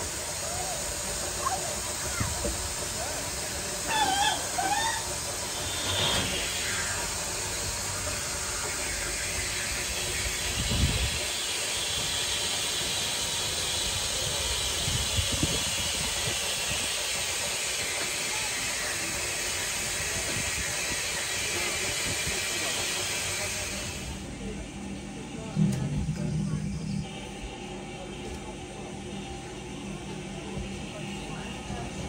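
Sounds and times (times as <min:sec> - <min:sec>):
steam locomotive hissing: 0:00.0 - 0:32.0
low thuds: 0:25.6 - 0:27.6.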